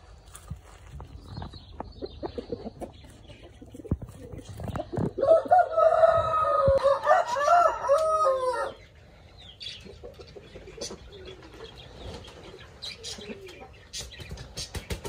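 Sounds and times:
rooster crowing: 5.2 - 8.8.

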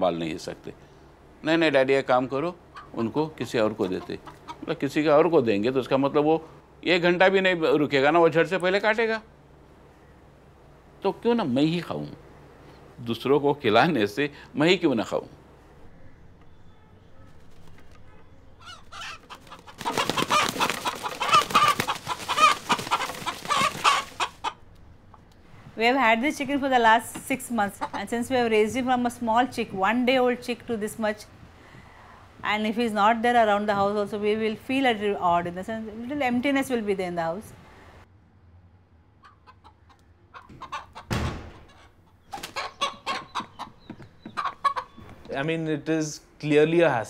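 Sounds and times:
rooster clucking: 2.6 - 4.7, 18.0 - 24.7, 27.2 - 28.4, 39.2 - 45.0
thud: 41.1 - 41.8.

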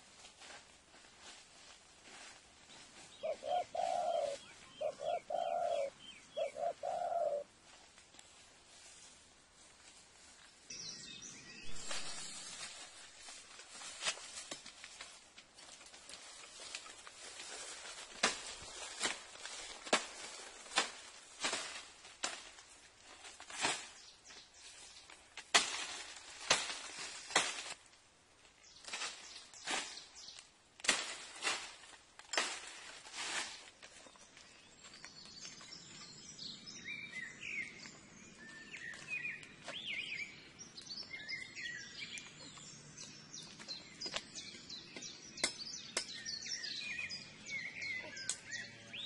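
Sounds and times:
branches and twigs rustling: 0.0 - 49.0
dove cooing: 3.2 - 7.5
faint bird chirps: 34.0 - 49.0.

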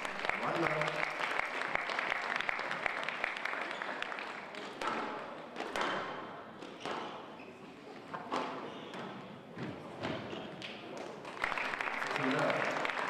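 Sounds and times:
applause: 0.0 - 4.8, 11.2 - 13.0
squash ball hit by rackets: 4.8 - 7.3.

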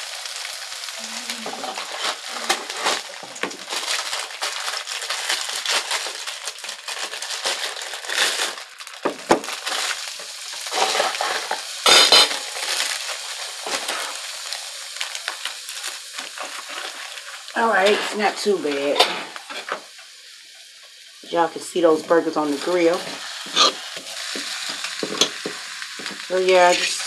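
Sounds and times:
plastic sheets crinkling: 0.0 - 19.6
patties sizzling on a griddle: 0.0 - 27.0.

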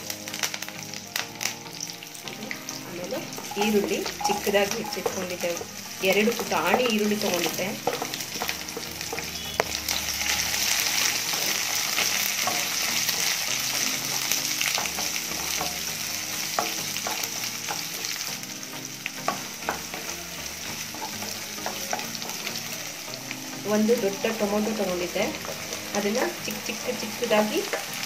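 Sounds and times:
onions sizzling in hot oil: 0.0 - 28.0
spatula tapping and scraping pan: 3.2 - 9.8, 11.1 - 18.2, 19.1 - 22.6.

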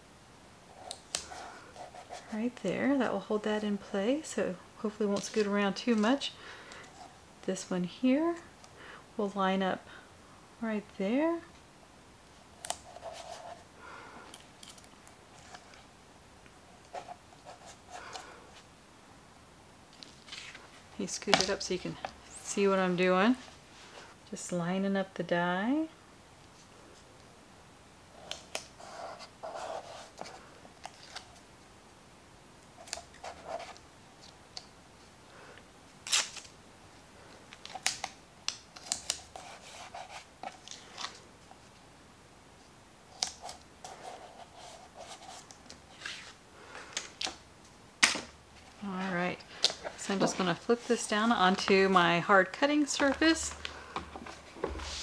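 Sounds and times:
rustling of cardstock and tape: 20.0 - 22.7, 36.0 - 36.6, 48.6 - 55.0
tape tearing: 36.0 - 36.5.

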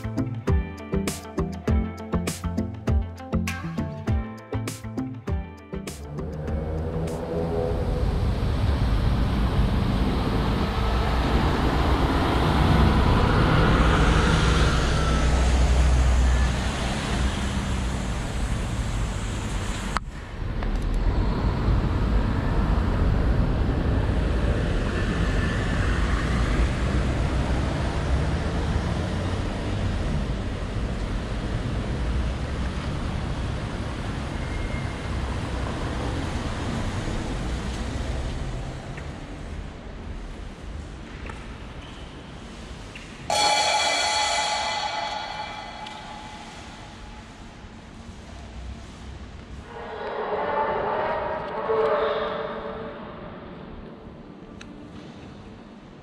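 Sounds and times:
bus engine rumbling past: 6.1 - 41.0.

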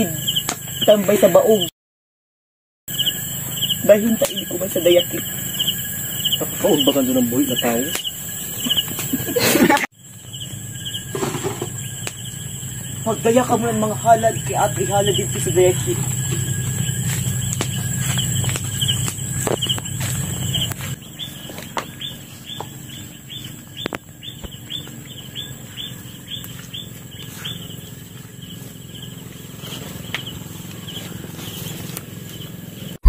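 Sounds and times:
high insect drone: 0.0 - 1.7, 2.9 - 33.0
low hum: 10.0 - 33.0.

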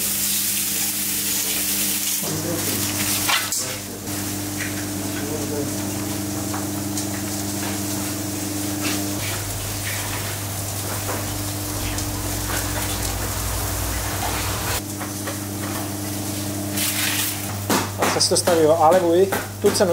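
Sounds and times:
low mechanical hum: 0.0 - 18.1.

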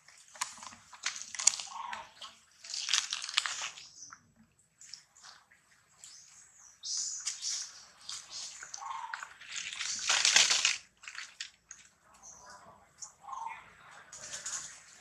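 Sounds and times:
dry leaves crackling and rustling: 0.3 - 3.9, 7.3 - 12.0.

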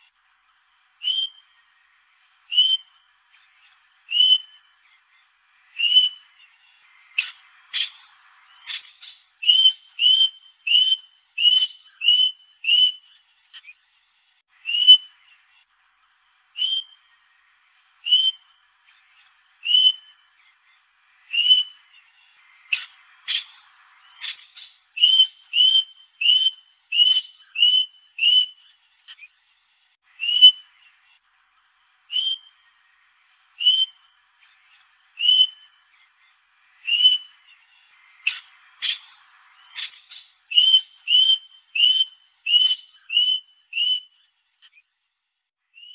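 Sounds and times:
parrot whistling calls: 8.6 - 13.1, 14.6 - 15.1, 19.6 - 20.1, 25.0 - 28.6, 30.2 - 30.7, 32.1 - 32.5, 33.6 - 34.0, 35.2 - 35.7, 36.8 - 37.4, 39.7 - 44.2.

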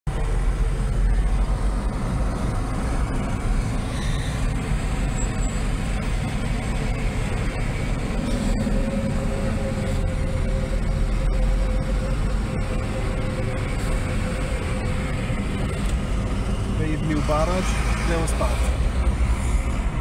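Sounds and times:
car road noise rumble: 0.1 - 20.0
truck engine hum: 0.1 - 20.0.

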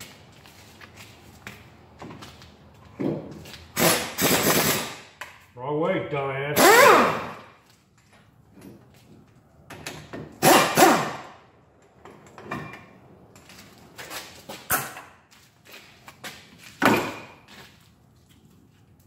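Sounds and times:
tools clanking on brake parts: 8.0 - 10.8, 11.8 - 15.2.

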